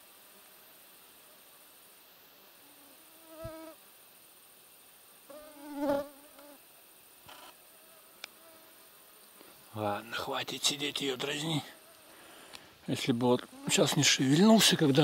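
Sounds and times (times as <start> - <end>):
fly buzzing past: 2.6 - 3.9, 5.2 - 9.5
faint click: 8.2 - 8.4, 11.9 - 12.7.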